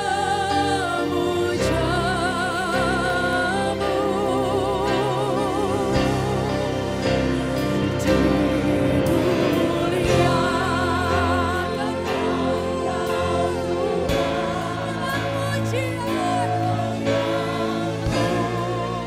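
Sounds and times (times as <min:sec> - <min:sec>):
worship band playing gospel song: 0:00.0 - 0:19.0.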